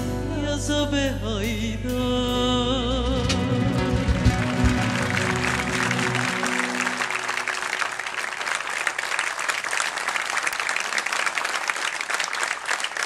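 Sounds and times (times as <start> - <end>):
music: 0.0 - 7.9
audience applauding: 4.0 - 13.0.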